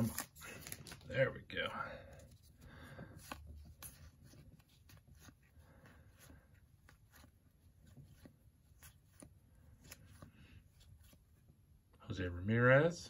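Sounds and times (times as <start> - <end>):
cards sliding with soft clicks: 2.2 - 11.5.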